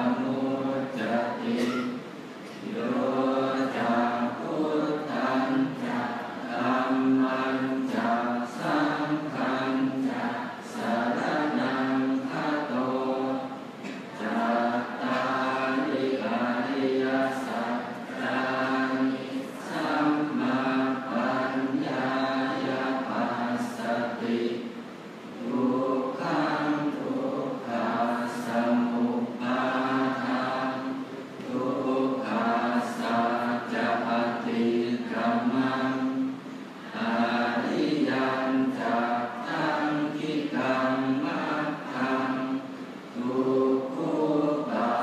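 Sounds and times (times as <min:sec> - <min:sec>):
monks chanting in unison: 0:00.0 - 0:24.8, 0:25.4 - 0:45.0.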